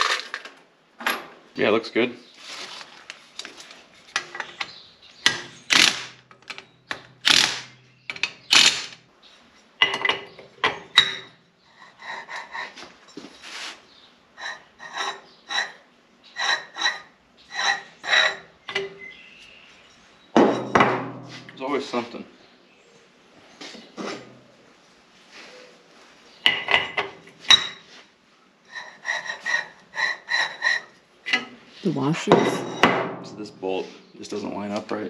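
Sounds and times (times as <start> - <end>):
cordless power driver running: 8.5 - 9.0.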